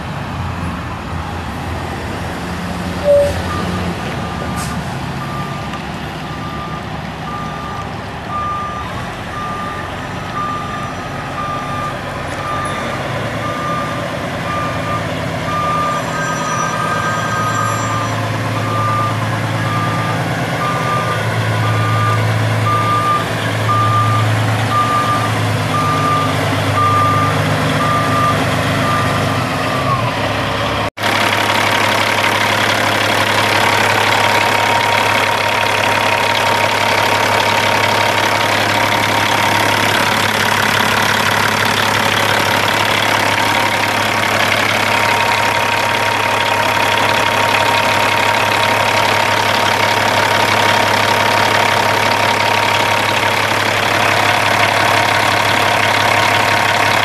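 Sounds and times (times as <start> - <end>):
diesel engine idling: 0.0 - 57.0
backup alarm beeping: 3.0 - 4.6.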